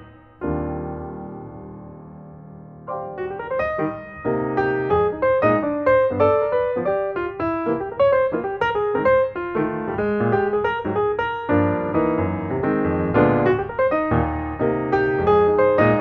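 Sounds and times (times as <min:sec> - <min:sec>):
solo piano: 0:00.0 - 0:16.0.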